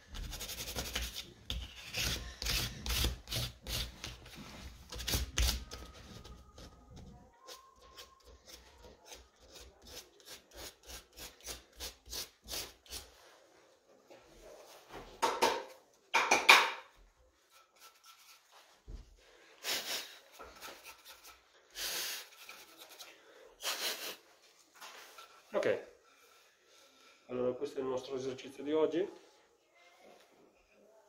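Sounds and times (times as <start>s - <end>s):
sandpaper rubbing wood: 0.2s - 4.3s, 4.9s - 5.8s, 19.7s - 24.2s.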